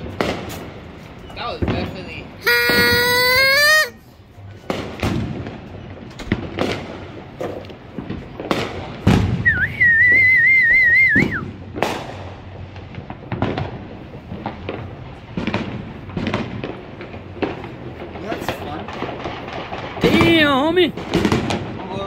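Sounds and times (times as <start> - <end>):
fireworks bangs and pops: 0.0 - 3.9, 4.5 - 22.0
loud warbling whistle: 2.4 - 4.0.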